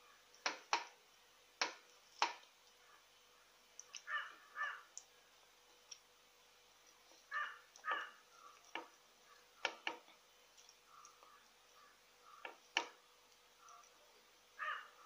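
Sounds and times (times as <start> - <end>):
crow cawing: 4.0 - 4.9, 7.3 - 8.6, 10.9 - 12.6, 14.6 - 15.0.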